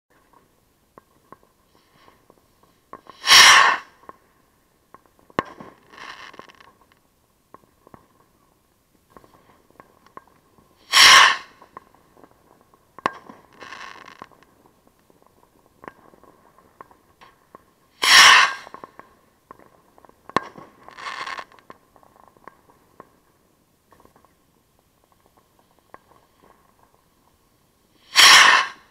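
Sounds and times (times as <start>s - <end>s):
firework launch whoosh: 3.1s - 4.0s, 10.8s - 11.6s, 18.0s - 18.8s, 28.0s - 28.9s
firework bursting pop: 4.9s - 6.8s, 13.0s - 14.5s, 18.0s - 19.7s.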